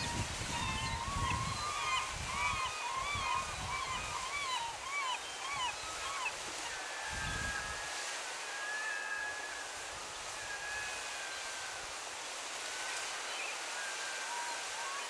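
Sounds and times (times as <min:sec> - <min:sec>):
gulls calling: 0:00.0 - 0:11.9
rushing creek falls: 0:00.0 - 0:15.0.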